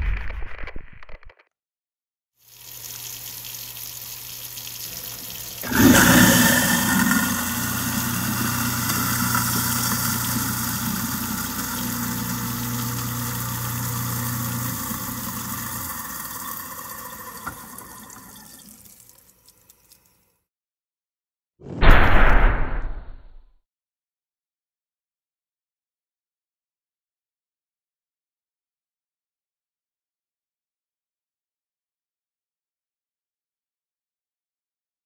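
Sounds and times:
water rushing down drain: 2.5s - 19.1s
garbage disposal motor hum: 2.5s - 19.2s.

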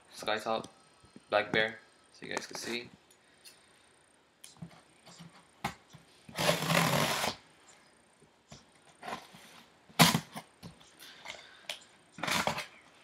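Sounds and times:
packing tape tearing: 6.3s - 7.4s, 10.0s - 10.5s, 12.2s - 12.8s.

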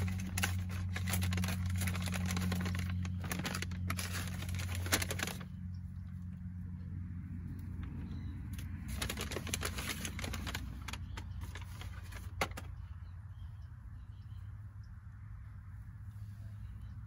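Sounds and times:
plastic bag rustling: 0.0s - 5.6s, 8.6s - 12.8s.

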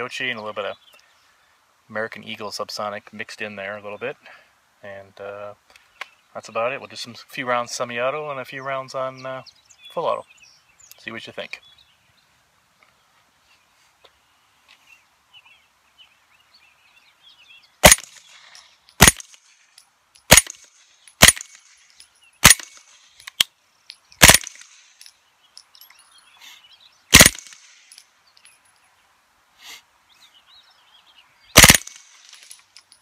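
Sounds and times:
suppressed rifle shots: 17.8s - 18.3s, 19.0s - 19.4s, 20.3s - 21.6s, 22.4s - 22.9s, 24.2s - 24.8s, 27.1s - 27.7s, 31.6s - 32.4s.

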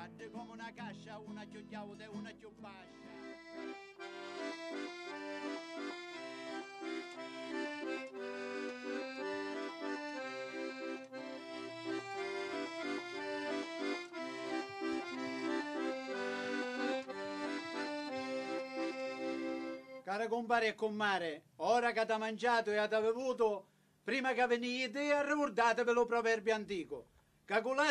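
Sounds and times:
piano accordion folk tune: 2.8s - 20.1s.

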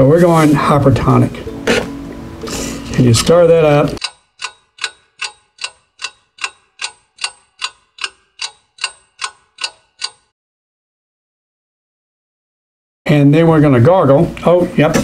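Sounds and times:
sharp ringing ticks: 4.0s - 10.4s.

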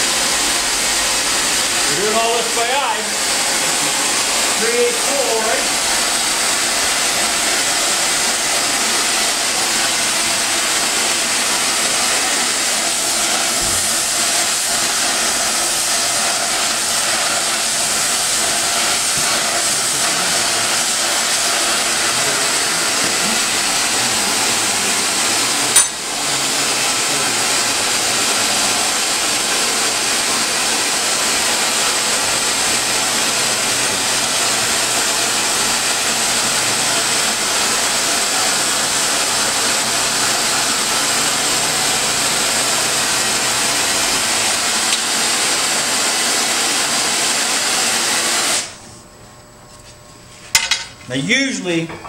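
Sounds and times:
forge rushing hiss: 0.0s - 30.0s.

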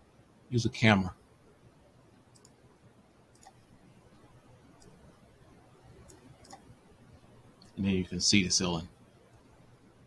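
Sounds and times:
faint computer mouse clicks: 2.3s - 2.6s, 3.3s - 3.6s, 4.8s - 5.0s, 6.0s - 6.7s.

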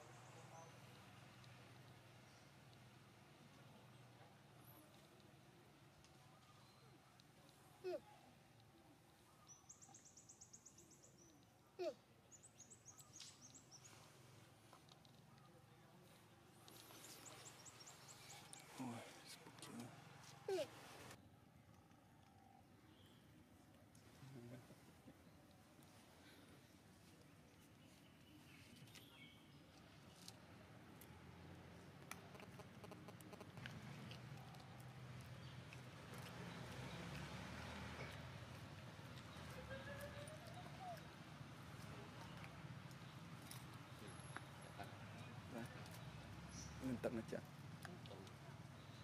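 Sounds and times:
faint chirp: 6.1s - 8.4s.

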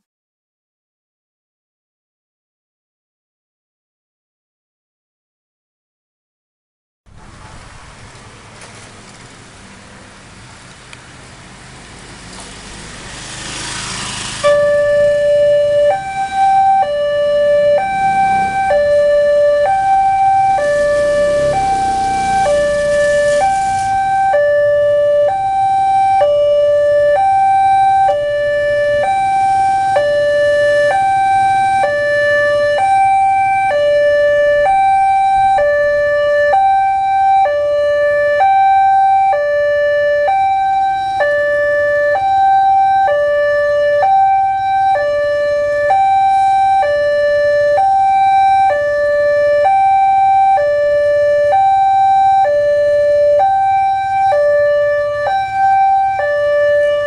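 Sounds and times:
level crossing alarm beeps: 14.4s - 57.0s.

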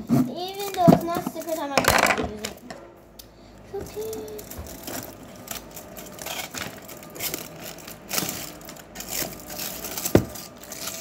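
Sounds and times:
foil crinkling: 4.0s - 11.0s.

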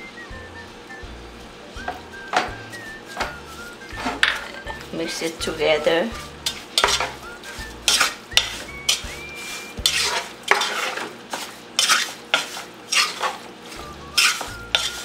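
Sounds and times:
wooden spoon scraping a pot: 3.5s - 15.0s.

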